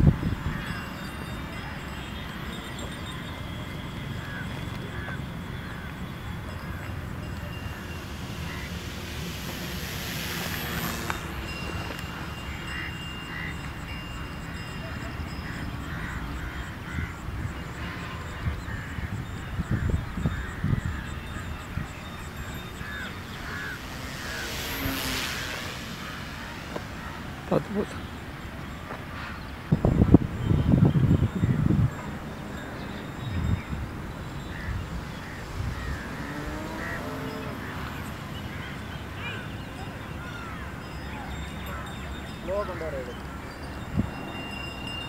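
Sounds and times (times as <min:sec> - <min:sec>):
model plane motor buzzing overhead: 0:00.0 - 0:45.0
steady low rumble: 0:05.2 - 0:14.7, 0:19.6 - 0:28.8.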